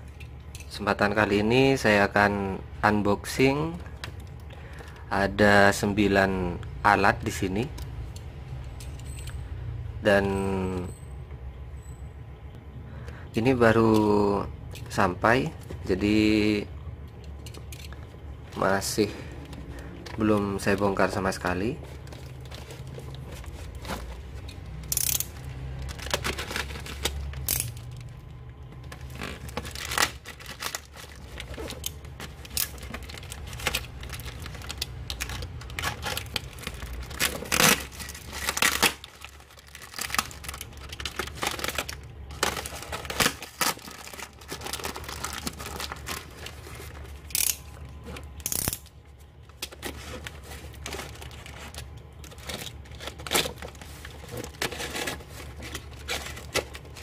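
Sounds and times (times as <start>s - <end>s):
plastic bag tearing and crinkling: 25.6s - 27.5s, 29.0s - 47.0s.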